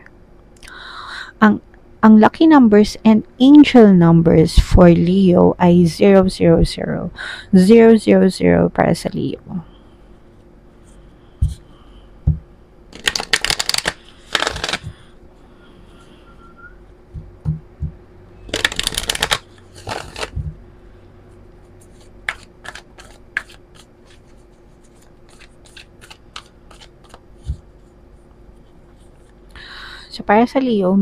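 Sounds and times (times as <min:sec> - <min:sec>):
cards being shuffled: 0:12.9 - 0:15.1, 0:18.5 - 0:20.6, 0:21.8 - 0:27.9.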